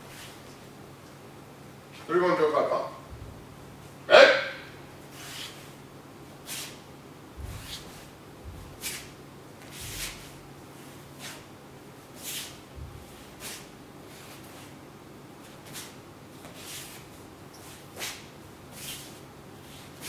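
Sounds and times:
bare feet thudding on mats: 7.3s - 10.4s, 12.7s - 13.7s.

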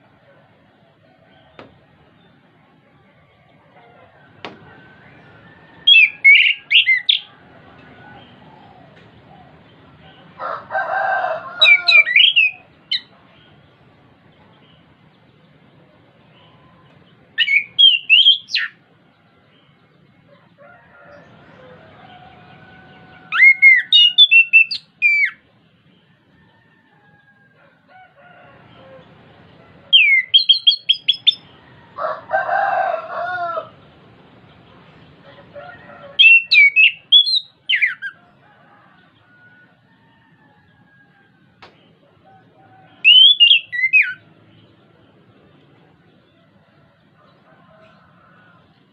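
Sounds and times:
lower drawn-out bird call: 3.8s - 10.6s, 21.2s - 25.4s, 42.3s - 44.3s.

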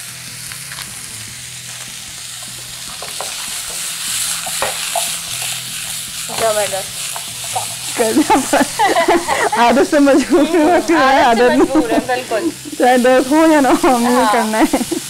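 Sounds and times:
vegetables sizzling in oil: 0.0s - 15.0s
food and pan clicks: 2.4s - 9.4s.

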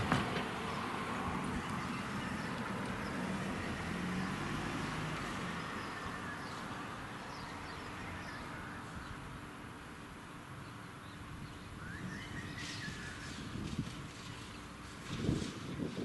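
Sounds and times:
distant freight train rumbling: 0.0s - 4.3s.

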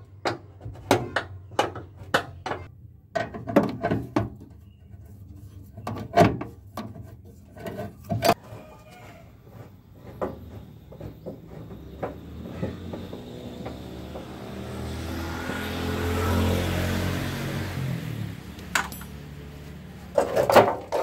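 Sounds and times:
vehicle passing by: 11.4s - 20.2s.

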